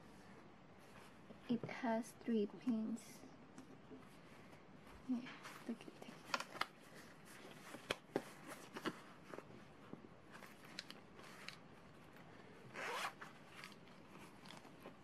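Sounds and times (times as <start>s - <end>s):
zipper on fabric case: 12.6s - 14.6s.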